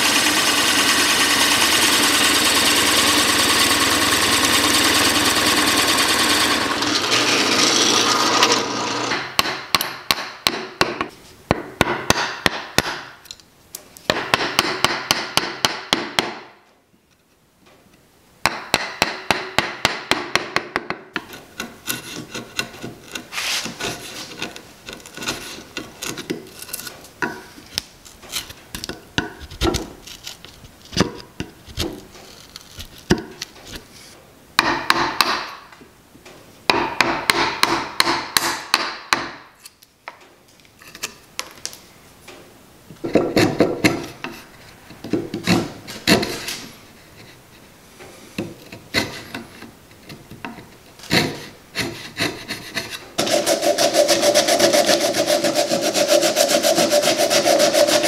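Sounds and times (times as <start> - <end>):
hand tool rasping on wood: 0.0 - 9.2, 51.1 - 58.0.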